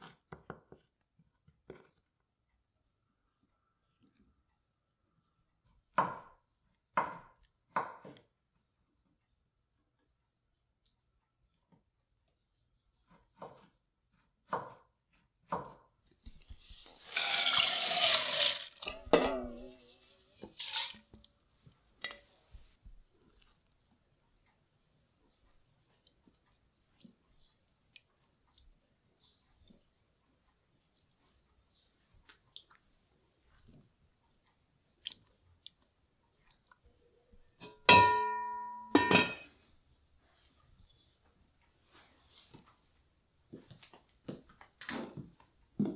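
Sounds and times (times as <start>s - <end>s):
rice and water pouring into pot: 16.6s - 19.3s, 20.4s - 21.2s
cast-iron pot lid clanking: 19.0s - 19.8s, 37.6s - 39.5s.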